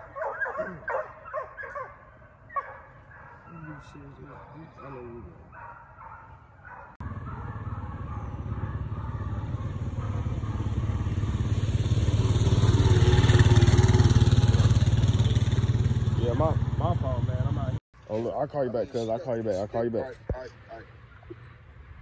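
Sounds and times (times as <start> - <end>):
vehicle engine on dirt road: 7.0 - 18.3.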